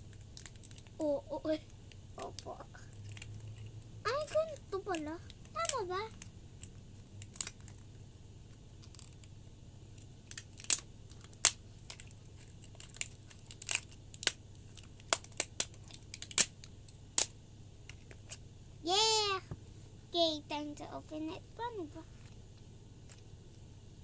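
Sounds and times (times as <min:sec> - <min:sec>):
faint plastic crinkling: 0:00.0 - 0:09.3, 0:09.9 - 0:17.0
plastic packaging clicks and snaps: 0:00.1 - 0:01.0, 0:01.9 - 0:03.6, 0:06.6 - 0:07.8, 0:10.0 - 0:18.2.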